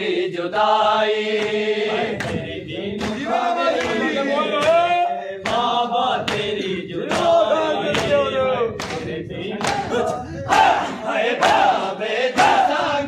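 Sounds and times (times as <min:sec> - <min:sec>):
men chanting a lament: 0:00.0 - 0:13.0
chest-beating slaps: 0:02.2 - 0:03.2, 0:08.8 - 0:09.9.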